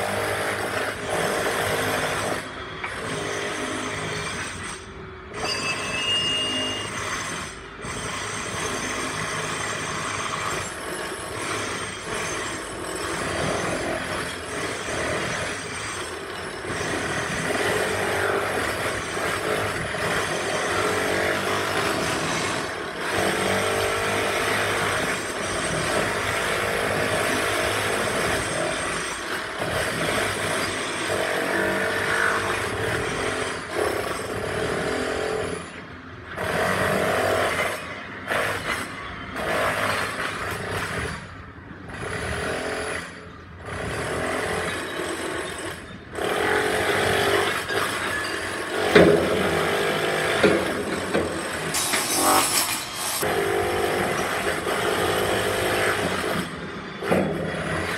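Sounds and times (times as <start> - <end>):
power tool breaking tiles: 46.2 - 57.9.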